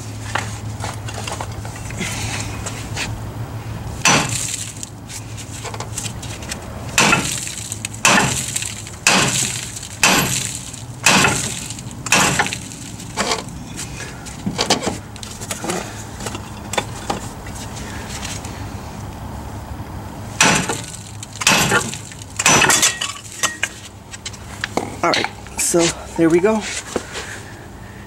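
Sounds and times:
hammer striking metal: 4.0s - 4.5s, 7.0s - 12.6s, 20.4s - 23.7s.

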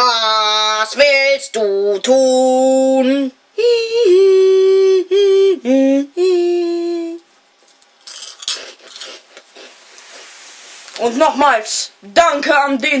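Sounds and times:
high voice singing held notes: 0.0s - 7.3s
steady hiss: 8.4s - 12.1s
faint rustling: 9.4s - 11.2s.

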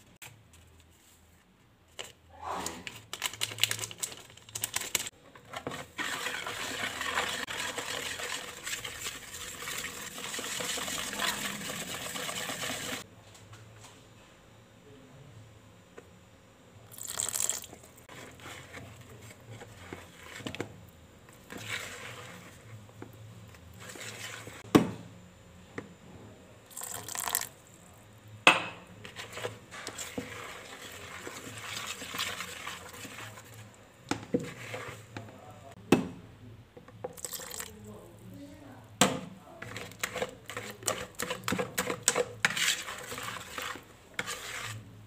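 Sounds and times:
whisk stirring batter: 3.2s - 13.1s, 17.0s - 22.9s, 23.7s - 24.6s, 29.0s - 35.5s, 39.4s - 45.0s
liquid pouring: 16.9s - 17.7s, 26.7s - 27.5s, 37.1s - 37.7s.

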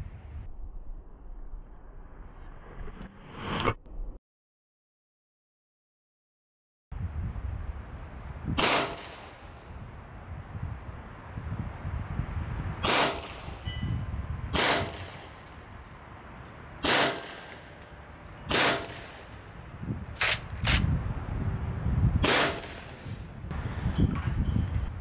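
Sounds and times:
air pistol shots: 8.6s - 9.3s, 12.8s - 13.5s, 14.5s - 15.2s, 16.8s - 17.6s, 18.5s - 19.2s, 20.2s - 20.9s, 22.2s - 23.0s.

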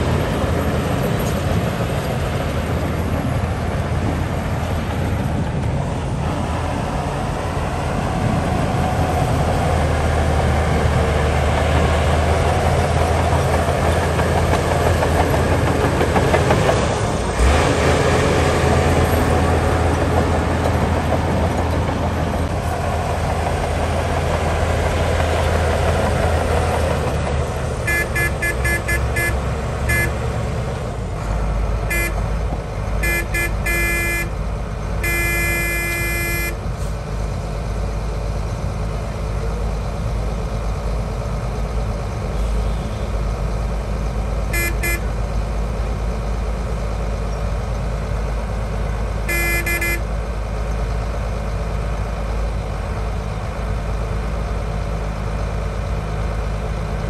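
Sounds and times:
diesel machinery running: 0.0s - 57.0s
vehicle horn beeps: 27.9s - 30.2s, 31.9s - 32.2s, 33.0s - 34.3s, 35.0s - 36.6s, 44.5s - 45.1s, 49.3s - 50.0s.

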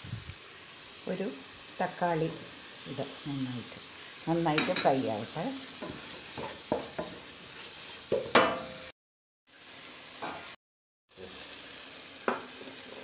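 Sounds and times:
masala sizzling in oil: 0.0s - 13.0s
spatula scraping pan: 3.7s - 8.7s.

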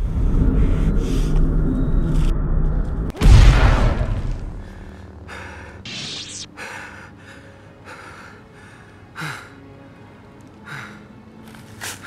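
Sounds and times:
faint low drone: 0.0s - 10.8s
man panting heavily: 4.6s - 5.9s, 6.5s - 9.7s.

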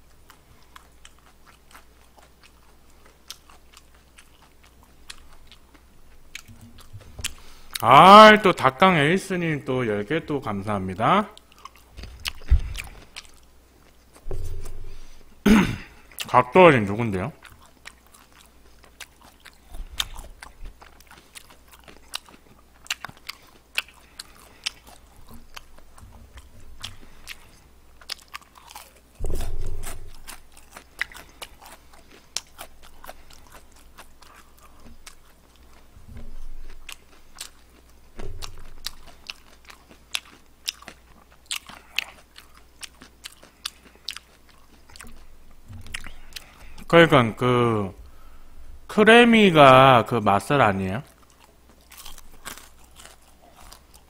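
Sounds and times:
chewing crispy chicken: 0.0s - 14.4s, 15.8s - 48.3s, 50.6s - 54.0s
low bumps: 14.2s - 15.4s, 29.2s - 30.4s.

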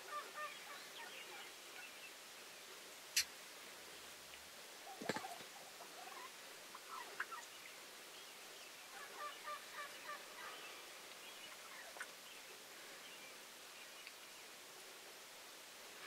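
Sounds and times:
turkey gobbling: 0.1s - 1.5s, 3.1s - 3.3s, 4.8s - 7.5s, 8.9s - 10.6s, 11.6s - 12.1s.

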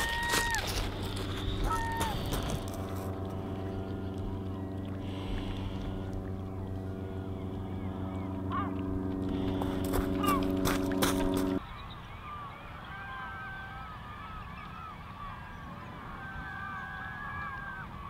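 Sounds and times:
engine running steadily: 0.0s - 11.6s.

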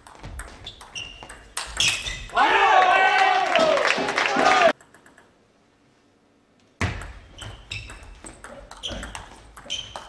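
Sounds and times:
table tennis ball clicking: 4.8s - 5.4s.

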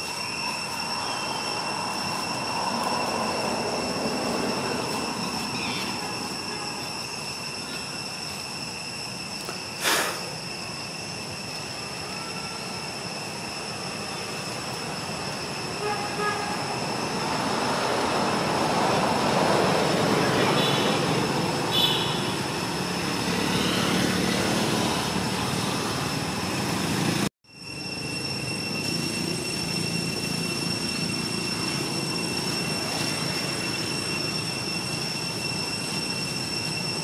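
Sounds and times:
background hiss: 0.0s - 17.3s
insects droning: 0.0s - 37.0s.

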